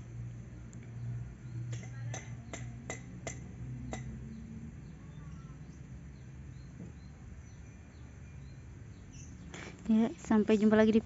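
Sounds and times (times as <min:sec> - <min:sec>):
low steady hum: 0:00.0 - 0:11.0
faint bird chirps: 0:04.3 - 0:11.0.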